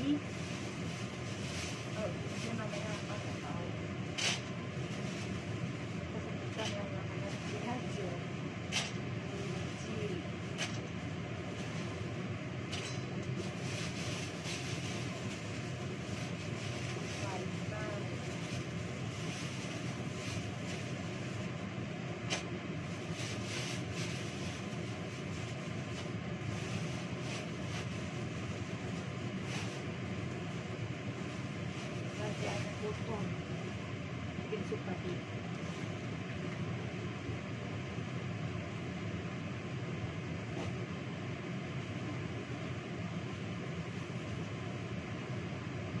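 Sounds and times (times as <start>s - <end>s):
plastic bags rustling: 0.0s - 8.0s, 12.8s - 21.4s
steady mechanical whir: 0.0s - 46.0s.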